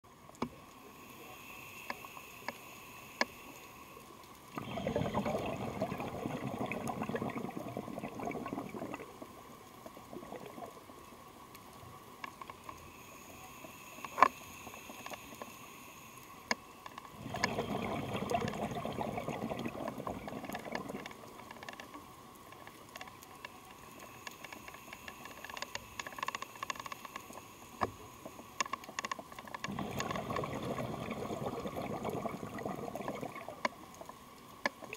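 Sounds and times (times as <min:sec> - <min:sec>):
diver exhaling bubbles: 0:04.6 - 0:09.2, 0:17.2 - 0:21.0, 0:29.7 - 0:33.6.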